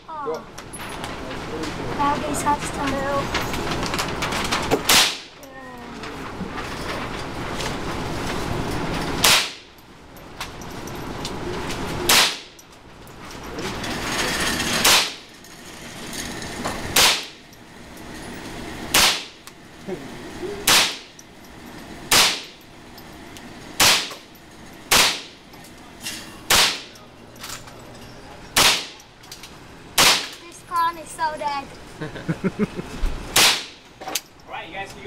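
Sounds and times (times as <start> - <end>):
rifle shots ringing indoors: 4.9 - 5.3, 9.2 - 9.7, 12.1 - 12.6, 14.8 - 15.2, 17.0 - 17.5, 18.9 - 19.3, 20.7 - 21.1, 22.1 - 22.6, 23.8 - 24.2, 24.9 - 25.4, 26.5 - 27.0, 28.6 - 29.0, 30.0 - 30.4.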